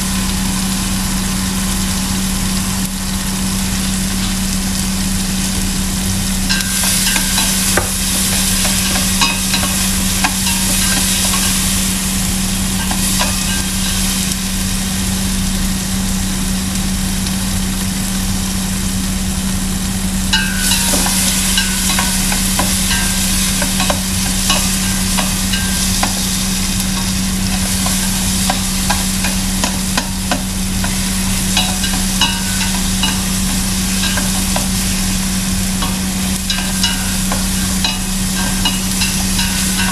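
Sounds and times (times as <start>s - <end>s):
tomatoes sizzling in hot oil: 0.0s - 39.9s
low hum: 20.2s - 39.9s.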